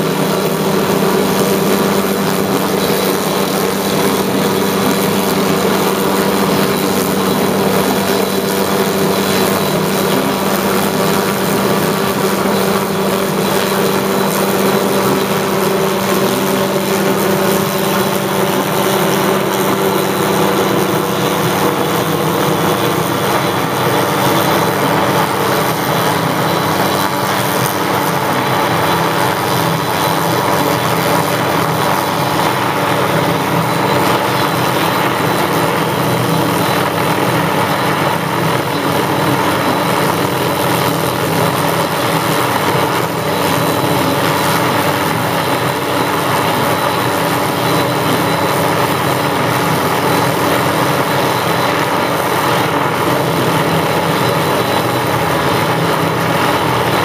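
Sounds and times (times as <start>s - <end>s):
helicopter turbine and rotor drone: 0.0s - 57.0s.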